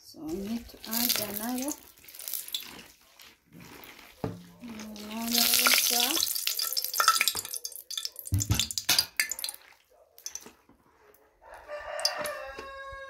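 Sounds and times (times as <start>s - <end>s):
water poured into basin: 0.4s - 10.5s.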